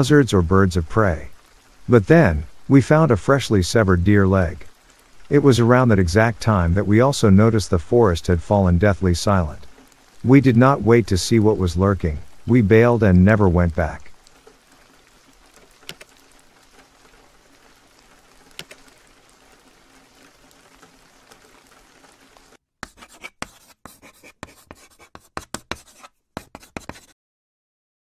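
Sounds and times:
faint steady rain: 0.0s - 22.6s, 23.6s - 27.1s
small clicks: 15.5s - 17.2s, 18.4s - 19.0s
scratchy scribbling strokes: 22.8s - 27.2s.

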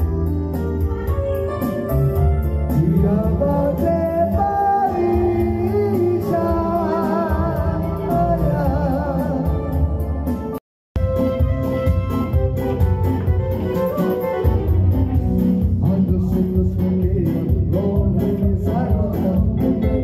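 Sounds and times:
keyboard backing of bass and beat: 0.0s - 20.0s
man singing into a microphone: 2.7s - 10.2s, 15.4s - 20.0s.

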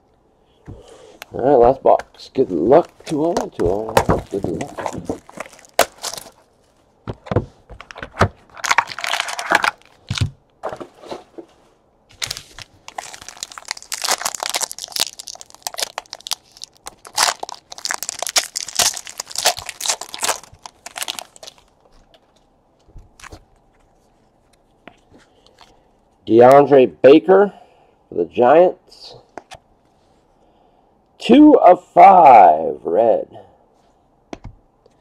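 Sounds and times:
plastic wrapping crinkling and tearing: 2.7s - 6.5s, 7.9s - 10.3s, 12.1s - 22.4s.

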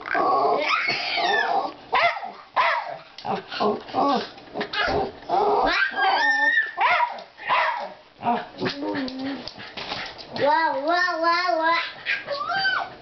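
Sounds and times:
dog yipping whining and barking: 5.6s - 7.9s, 11.8s - 13.0s.

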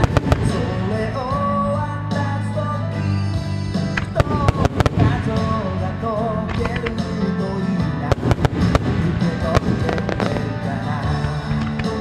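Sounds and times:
loud music: 0.0s - 12.0s
firework shells bursting: 8.1s - 12.0s.

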